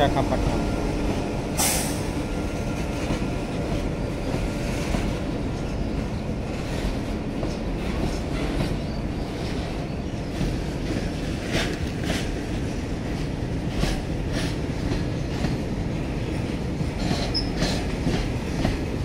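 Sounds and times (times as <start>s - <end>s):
freight train wheels rumbling: 0.0s - 19.0s
wheels clicking over rail joints: 16.4s - 19.0s.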